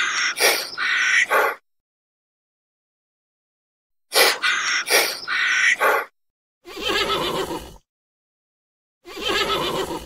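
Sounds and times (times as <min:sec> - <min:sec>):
horse whinnying: 0:06.7 - 0:07.8, 0:09.1 - 0:10.0.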